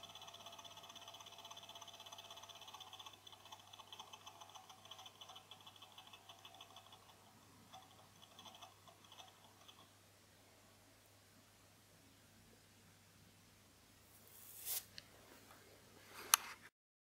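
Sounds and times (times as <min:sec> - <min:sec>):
faint fast ticking chatter: 0:00.0 - 0:09.9.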